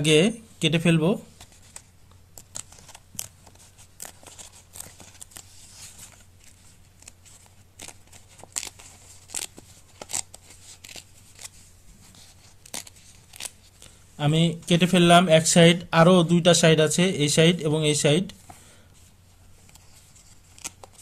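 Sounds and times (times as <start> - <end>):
paper tearing: 2.4 - 13.7, 19.7 - 21.0.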